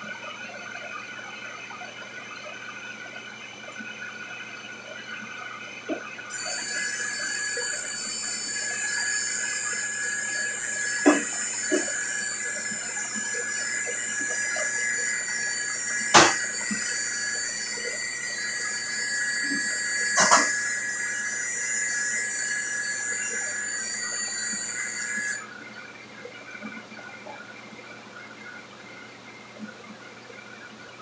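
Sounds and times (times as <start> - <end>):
kitchen range and hood hiss: 6.3 - 25.4.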